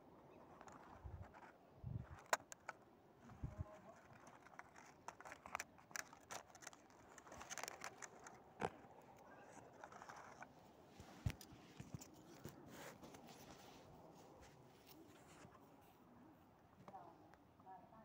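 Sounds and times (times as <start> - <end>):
plastic tub clicking and crackling: 2.2 - 2.8, 3.8 - 10.5.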